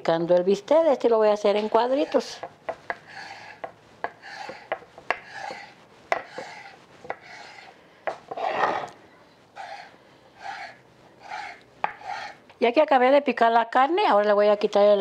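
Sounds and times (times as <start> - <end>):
knife sawing through meat: 1.7 - 8.9, 9.6 - 12.4
knife tapping wooden board: 3.6 - 7.3.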